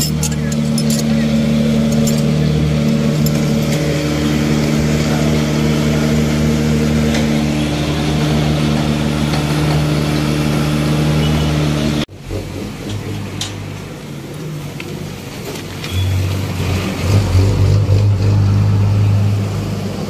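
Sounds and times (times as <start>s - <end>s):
low mechanical engine drone: 0.0s - 15.2s.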